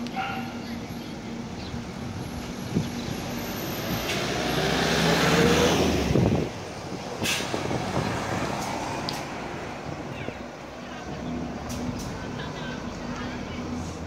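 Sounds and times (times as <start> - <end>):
bus diesel engine revving: 1.8 - 10.1.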